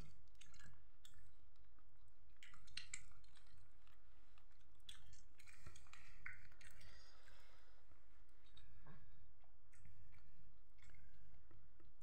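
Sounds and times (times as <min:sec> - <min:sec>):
person chewing crunchy food: 0:00.0 - 0:07.6.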